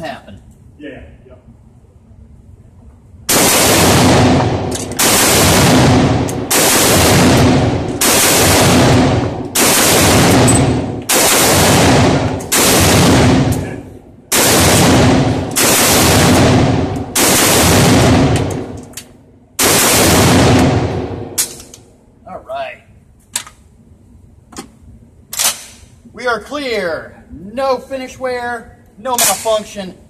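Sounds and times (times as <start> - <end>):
rifle shots ringing indoors: 3.2 - 22.0, 25.2 - 26.0.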